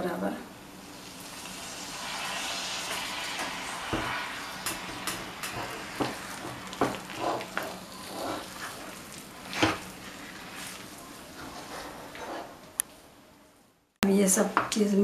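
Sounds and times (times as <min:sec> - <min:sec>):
paste sizzling: 0:00.7 - 0:12.7
metal spatula scraping a pan: 0:02.1 - 0:12.6.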